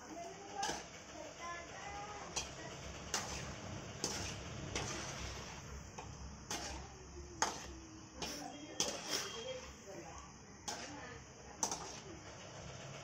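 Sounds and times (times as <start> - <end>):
oil sizzling: 0.0 - 13.0
metal spatula clinking on pan: 7.4 - 9.6, 10.7 - 11.0, 11.6 - 12.0.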